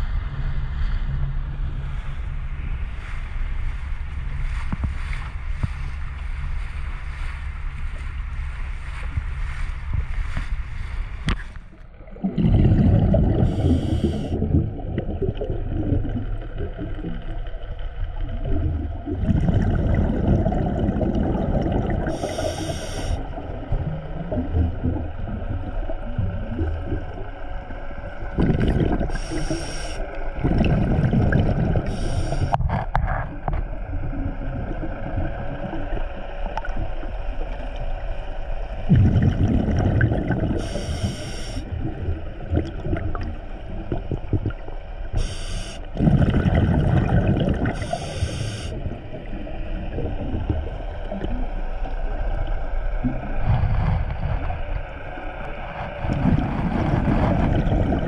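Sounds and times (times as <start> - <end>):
underwater bubbling exhalation: 11.9 - 38.0, 38.8 - 58.0
regulator inhalation hiss: 13.5 - 14.4, 22.1 - 23.3, 29.1 - 30.1, 31.8 - 32.6, 40.6 - 41.6, 45.2 - 45.9, 47.8 - 48.8.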